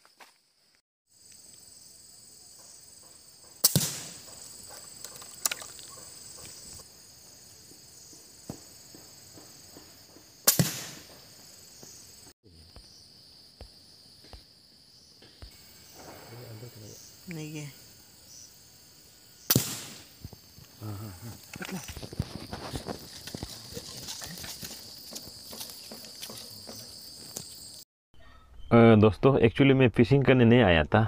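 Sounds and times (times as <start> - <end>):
insects droning: 0.0 - 27.8
air rifle shots: 3.6 - 4.3, 10.4 - 11.1, 19.5 - 20.2.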